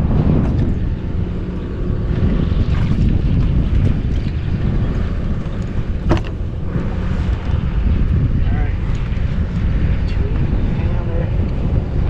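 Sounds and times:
wind buffeting microphone: 0.0s - 12.0s.

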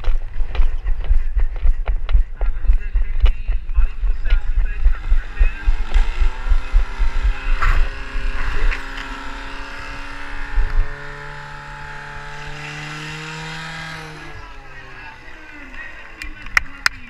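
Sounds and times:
low thumps on microphone: 0.0s - 11.2s.

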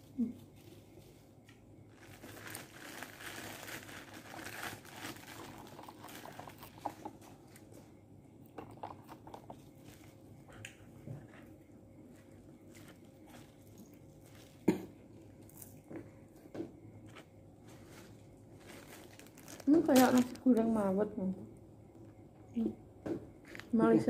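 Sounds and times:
plastic bag and paper crinkling: 0.0s - 7.8s, 12.1s - 16.0s, 17.1s - 21.0s.

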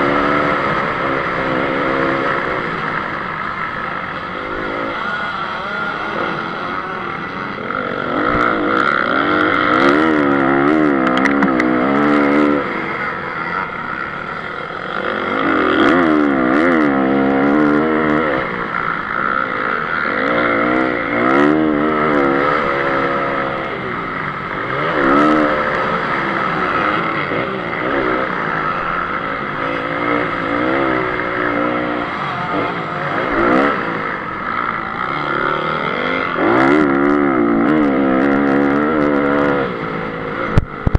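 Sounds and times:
motocross engine revving: 0.0s - 40.9s
sharp ticks: 11.0s - 11.8s.

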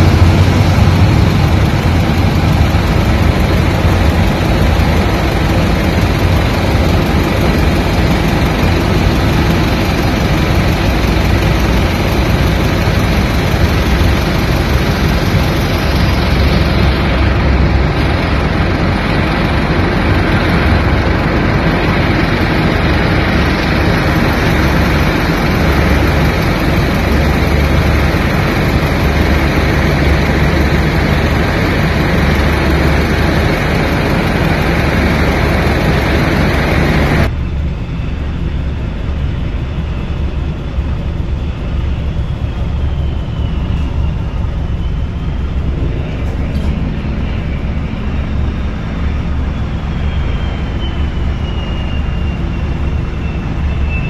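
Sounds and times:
jet engines running: 0.0s - 54.0s.

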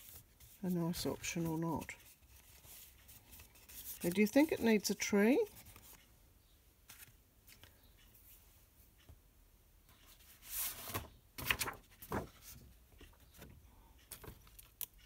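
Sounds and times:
paper rustling and sliding: 10.3s - 12.6s.

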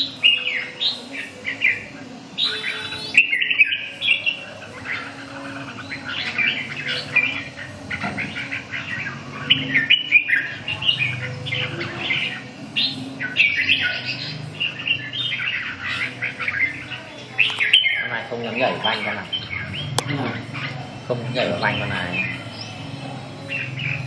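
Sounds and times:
bird warbling song: 0.0s - 24.0s.

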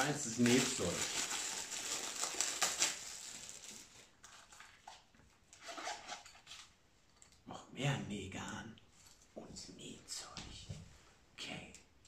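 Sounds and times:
plastic wrapping crinkling: 0.0s - 5.1s.

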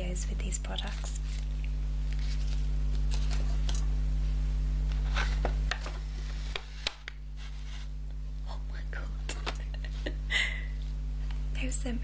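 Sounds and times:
low hum: 0.0s - 12.0s
paper bag rustling: 1.2s - 3.6s.

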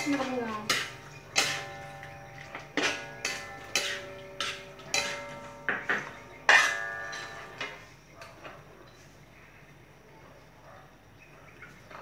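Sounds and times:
metal spatula clanking on wok: 0.0s - 7.9s.

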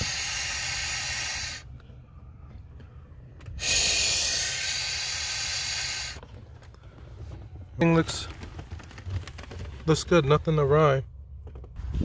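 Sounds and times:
air rushing through hose: 0.0s - 1.7s, 3.6s - 6.3s.

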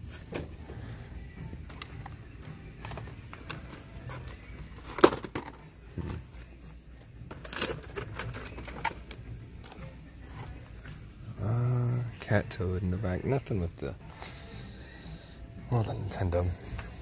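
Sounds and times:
plastic blister packs clicking: 7.3s - 9.8s.

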